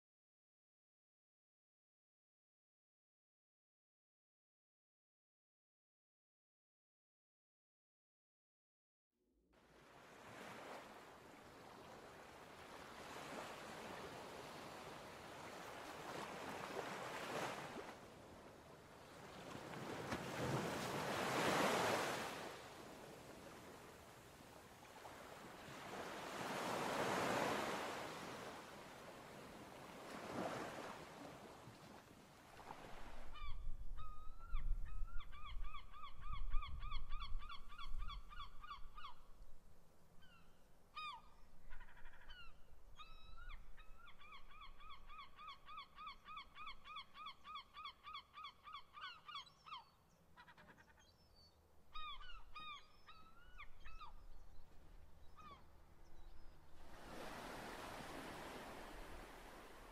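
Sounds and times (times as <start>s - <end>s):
surf washing in: 19.2s - 23.4s, 56.8s - 59.9s.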